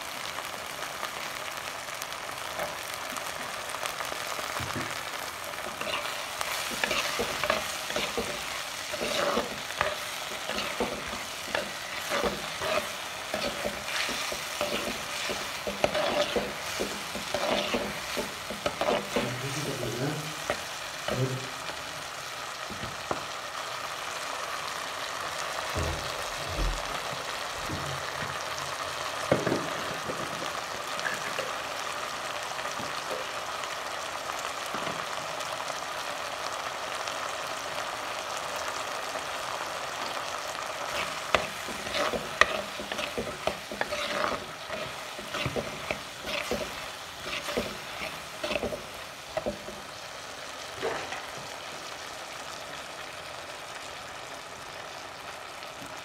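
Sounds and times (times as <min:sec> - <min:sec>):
vegetables sizzling in a clay pot: 0:00.0 - 0:56.0
spatula scraping a pot: 0:05.6 - 0:19.4, 0:40.9 - 0:49.8.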